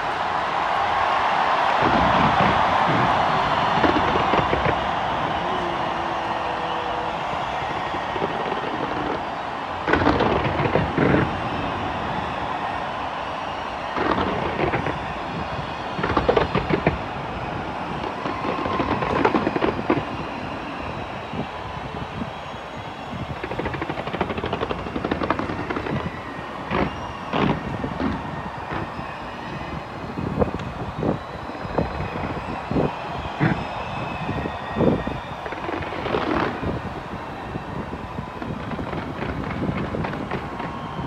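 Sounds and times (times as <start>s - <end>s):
fireworks bangs and crackles: 0.0s - 41.0s
loud single firework bangs: 0.7s - 21.4s, 22.3s - 29.8s.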